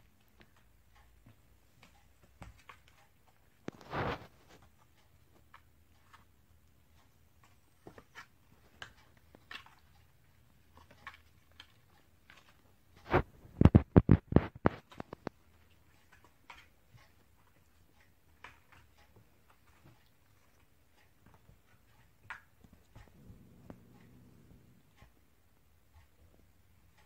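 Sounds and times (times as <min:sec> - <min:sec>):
kittens tapping and scratching: 0:00.0 - 0:27.0.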